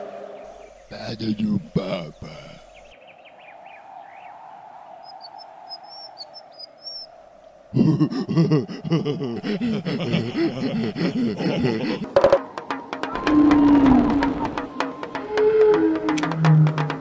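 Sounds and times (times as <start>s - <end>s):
soft ambient noise: 0.0s - 4.9s
man laughing loudly: 1.7s - 2.6s, 7.7s - 12.4s
high bird chirps: 5.0s - 7.1s.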